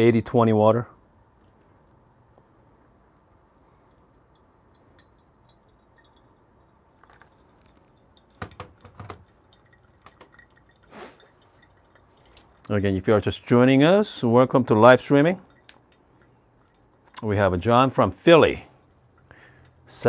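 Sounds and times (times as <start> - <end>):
water pouring onto coffee grounds: 4.3 - 18.6
handling clicks and knocks: 7.0 - 10.4.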